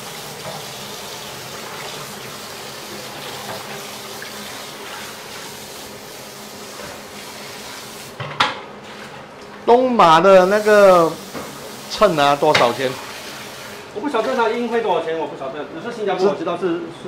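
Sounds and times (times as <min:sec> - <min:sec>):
tap water running into pan: 0:00.0 - 0:09.1, 0:10.4 - 0:14.8.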